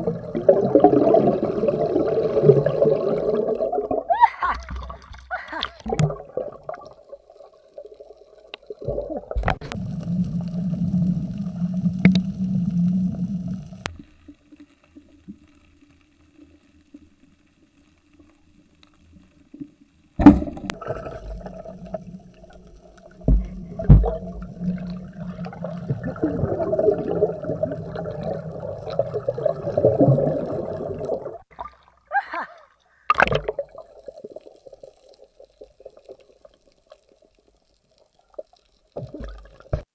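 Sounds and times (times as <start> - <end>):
underwater gurgling and bubbling: 0.0 - 13.9, 20.2 - 31.7, 33.1 - 37.3.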